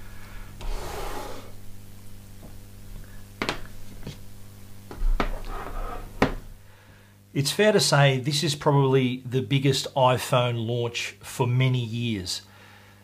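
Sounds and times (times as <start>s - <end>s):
steady low hum: 0.0s - 13.0s
objects knocking on wooden desk: 4.9s - 5.4s, 6.2s - 6.4s.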